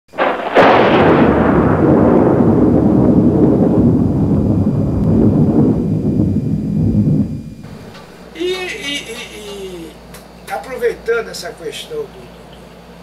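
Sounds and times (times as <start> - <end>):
loud boom with deep rumble: 0.2 - 8.2.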